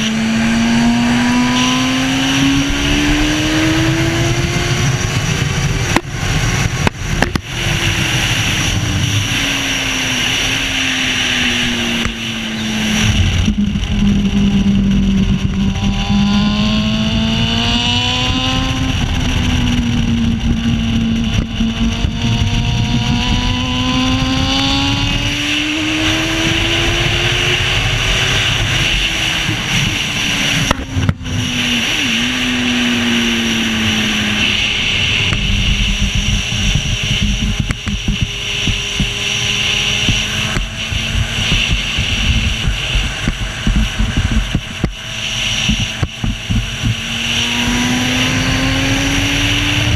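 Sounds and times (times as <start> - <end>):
racing engine at speed: 0.0 - 49.9
wind rush: 0.0 - 49.9.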